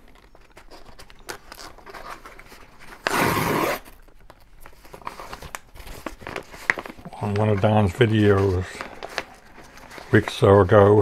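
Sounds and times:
paper mailer rustling and crinkling: 0.0 - 11.0.

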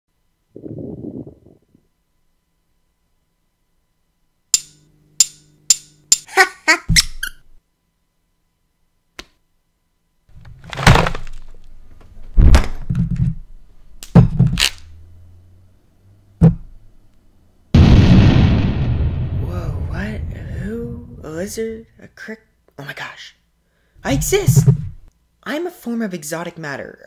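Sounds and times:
low hum: 0.1 - 6.2, 11.6 - 22.0.

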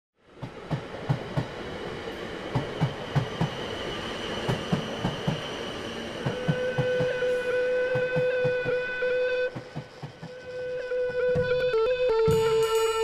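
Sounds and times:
train rolling hum: 0.2 - 13.0
train wheels clickety-clack: 0.4 - 13.0.

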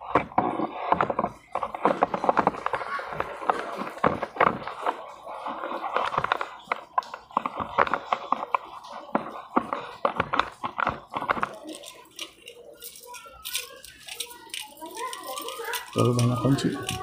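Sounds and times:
tools knocking and scraping plastic: 0.0 - 17.0.

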